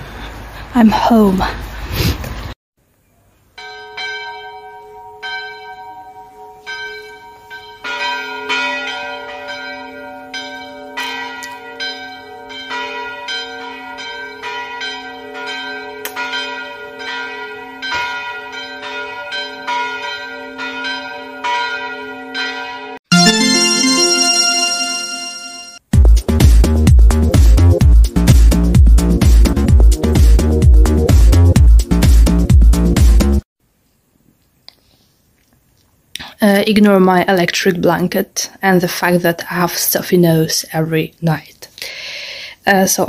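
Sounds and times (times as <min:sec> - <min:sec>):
bells chiming a melody: 0:03.6 - 0:25.8.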